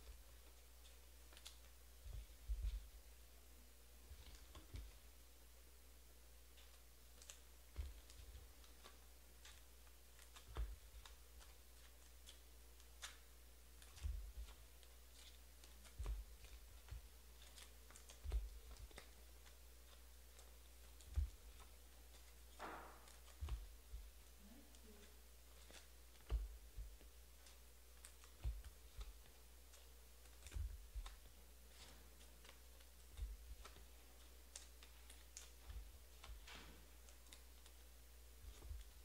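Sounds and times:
soft low thuds: 2.0s - 3.2s.

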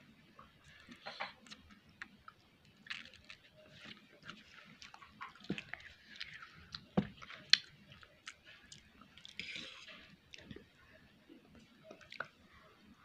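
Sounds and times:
person chewing noodles: 0.5s - 10.8s.

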